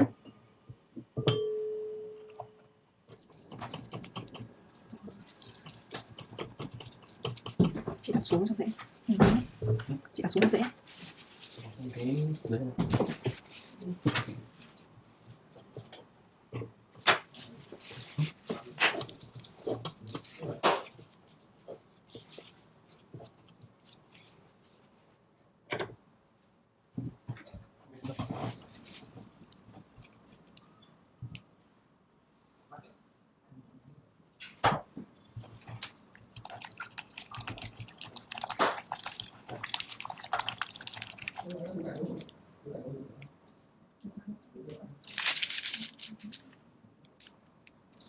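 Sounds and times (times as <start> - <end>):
spatula beating sticky paste: 3.1 - 8.7, 35.4 - 42.3.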